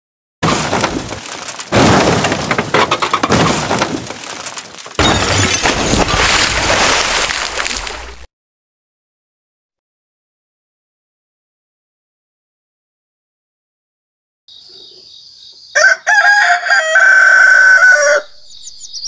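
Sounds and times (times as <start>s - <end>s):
stones clattering down concrete: 0.5s - 8.0s.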